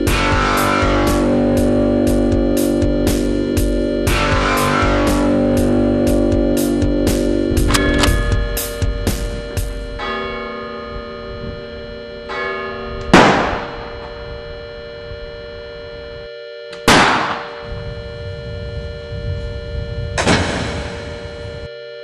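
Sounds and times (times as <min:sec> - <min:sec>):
drone of held notes: 0:00.0 - 0:22.0
heavy echoing strikes: 0:12.3 - 0:14.2, 0:16.9 - 0:17.7, 0:20.2 - 0:21.3.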